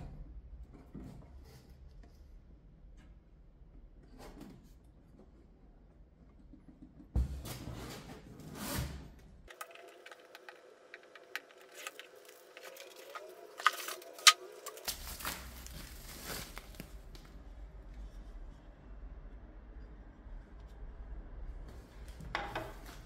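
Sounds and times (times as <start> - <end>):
cardboard and plastic rustling: 9.5 - 17.4.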